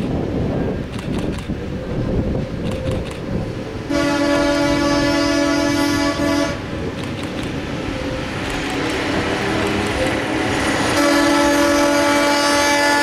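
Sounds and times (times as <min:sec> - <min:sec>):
train horn blast: 0:03.9 - 0:06.8, 0:07.8 - 0:13.0.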